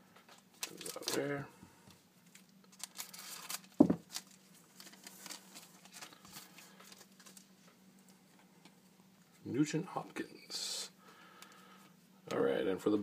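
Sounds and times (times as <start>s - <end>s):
cards rustling and ticking: 0.2s - 1.4s, 2.2s - 8.7s
foil wrapper crinkling: 0.4s - 1.4s, 2.2s - 7.7s
scissors cutting foil pack: 2.7s - 5.4s
thump: 3.8s - 4.0s.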